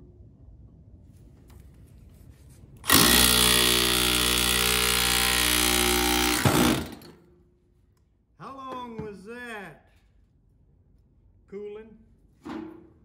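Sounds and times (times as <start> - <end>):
rotary hammer hammering: 2.8 - 7.2.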